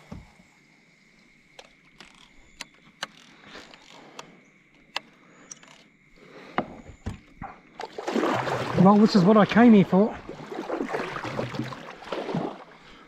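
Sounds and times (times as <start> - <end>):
lake ambience: 0.0 - 13.0
gear clicking on plastic kayak: 1.5 - 5.9.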